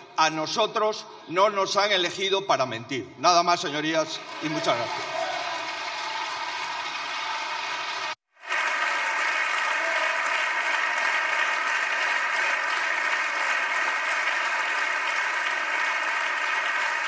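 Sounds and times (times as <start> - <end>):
crowd applauding: 4.1 - 17.0.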